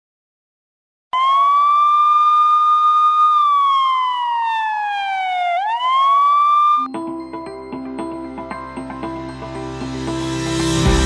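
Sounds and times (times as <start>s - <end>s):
wailing siren: 1.2s - 6.9s.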